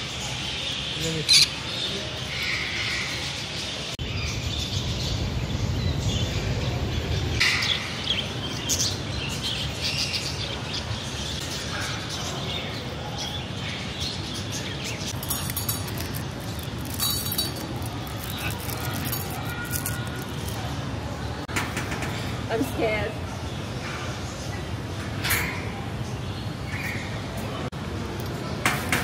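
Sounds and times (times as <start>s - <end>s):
parrots chirping and calling: 0.1s - 4.4s, 11.2s - 20.8s.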